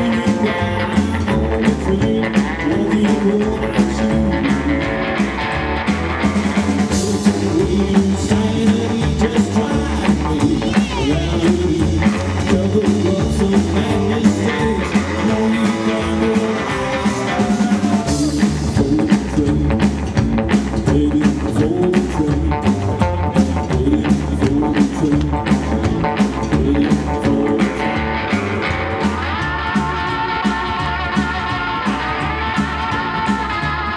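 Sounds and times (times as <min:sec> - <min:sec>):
drum kit: 0:00.0 - 0:33.9
electric guitar: 0:00.0 - 0:33.9
upright double bass: 0:00.0 - 0:33.9.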